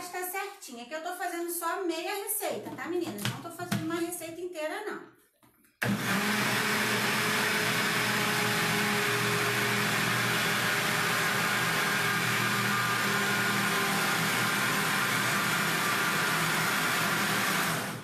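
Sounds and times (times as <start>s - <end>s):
blender running: 5.8s - 18.0s.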